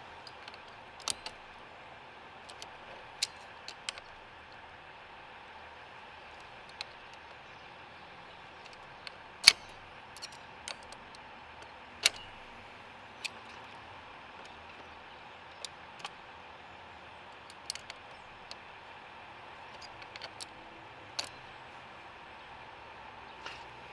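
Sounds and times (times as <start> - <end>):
steady background hiss: 0.0 - 23.9
locking pliers clicking and clinking: 0.2 - 1.6, 2.4 - 4.2, 8.6 - 11.2, 12.0 - 12.5, 17.3 - 18.6, 19.6 - 21.4.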